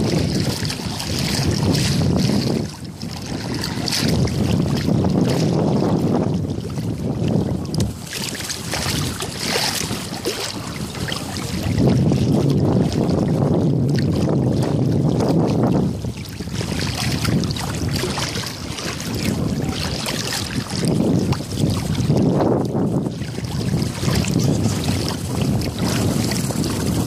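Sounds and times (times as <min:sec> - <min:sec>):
legs wading through water: 0:00.0 - 0:27.0
wind buffeting microphone: 0:00.0 - 0:27.0.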